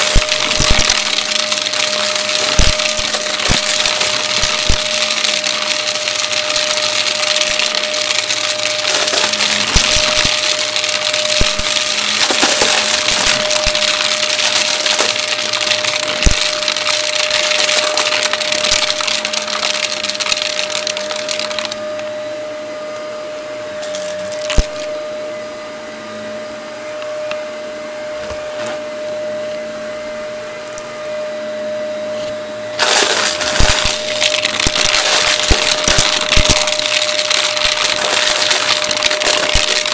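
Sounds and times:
coins clattering in vacuum: 0:00.0 - 0:21.8, 0:23.8 - 0:25.0, 0:32.8 - 0:39.9
vacuum cleaner motor whine: 0:00.0 - 0:39.9.

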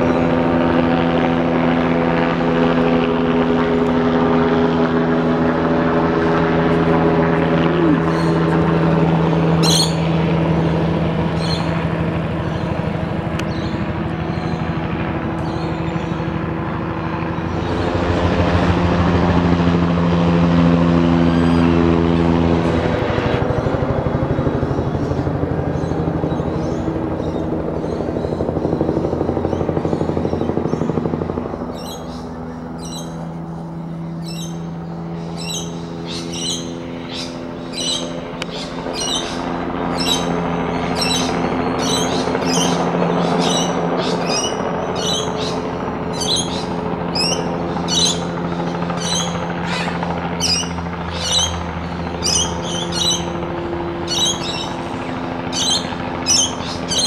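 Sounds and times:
helicopter rotor and turbine: 0:00.0 - 0:57.0
bird chirping: 0:41.0 - 0:48.3, 0:49.0 - 0:53.4, 0:54.1 - 0:57.0.

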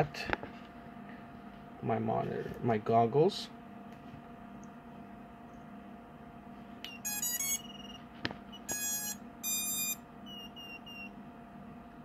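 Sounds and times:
low steady hum: 0:00.0 - 0:12.0
speed controller power-up beeps: 0:06.9 - 0:08.0, 0:08.7 - 0:11.1.

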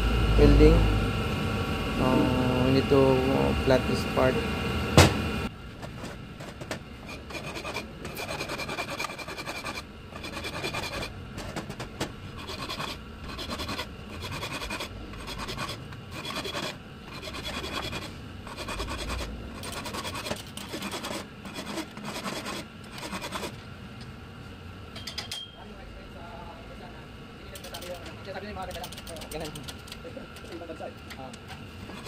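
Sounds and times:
hand file rasping on metal: 0:07.0 - 0:11.1, 0:12.4 - 0:23.5.

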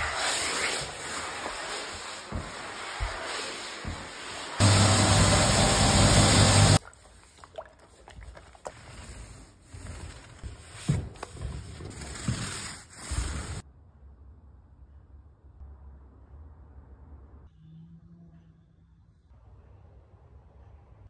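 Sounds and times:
paint roller on wooden floor: 0:00.0 - 0:13.6
paint sloshing in a tray: 0:06.8 - 0:12.6.

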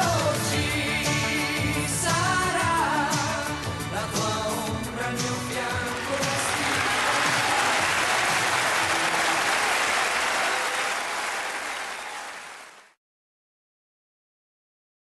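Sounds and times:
live music: 0:00.0 - 0:12.3
audience applause: 0:05.8 - 0:13.0.

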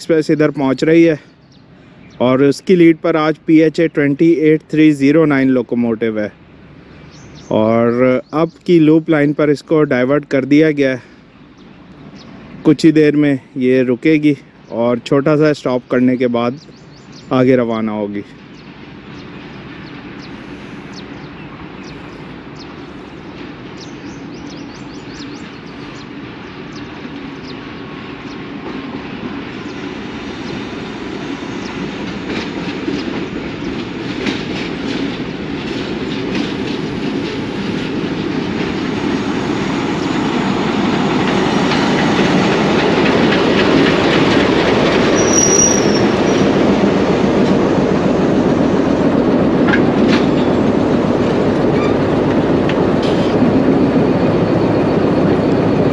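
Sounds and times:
diesel locomotive approaching: 0:00.0 - 0:55.9
train wheels clattering over joints: 0:06.8 - 0:55.9
high squeal: 0:45.1 - 0:46.6, 0:51.7 - 0:52.1.

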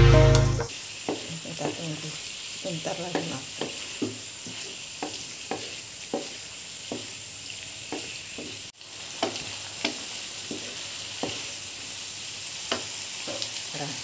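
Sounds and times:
food sizzling in a frying pan: 0:00.0 - 0:14.0
spatula scraping a pan: 0:03.1 - 0:07.1.

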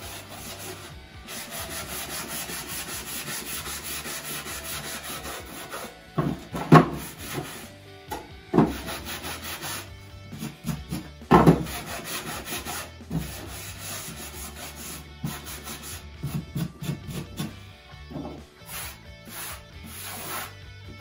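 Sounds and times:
sanding block rasping on wood: 0:00.0 - 0:07.7, 0:08.6 - 0:17.6, 0:18.2 - 0:20.6
wood knocking: 0:06.2 - 0:07.1, 0:08.1 - 0:08.9, 0:11.3 - 0:11.7, 0:18.1 - 0:18.4.

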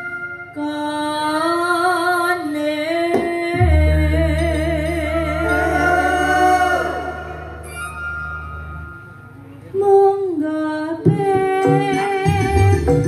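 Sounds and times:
live band: 0:00.0 - 0:01.1, 0:03.1 - 0:10.1, 0:11.0 - 0:13.0
woman singing with vibrato: 0:00.5 - 0:07.8, 0:09.8 - 0:13.0
low steady bass note: 0:03.6 - 0:09.6.

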